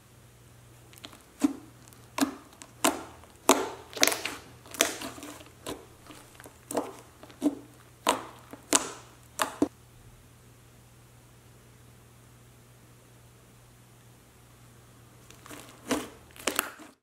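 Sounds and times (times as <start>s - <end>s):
slime squishing and popping: 0.8s - 9.7s, 15.3s - 17.0s.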